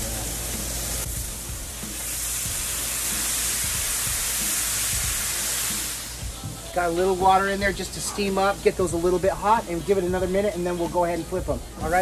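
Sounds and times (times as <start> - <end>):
water flashing to steam hiss: 0.0 - 9.1
chicken wings sizzling on griddle: 0.0 - 12.0.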